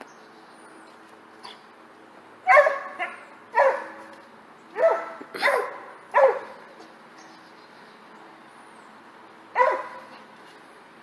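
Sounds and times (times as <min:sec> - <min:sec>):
dog barking: 0:02.5 - 0:04.0, 0:04.8 - 0:06.6, 0:09.6 - 0:10.1.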